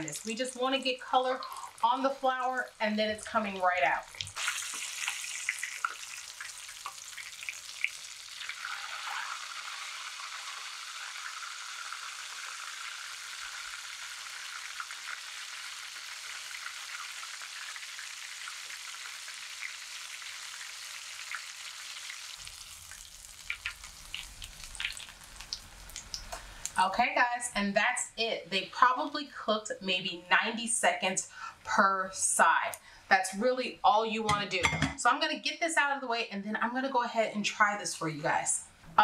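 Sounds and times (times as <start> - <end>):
chicken sizzling in a skillet: 4.0 - 26.8.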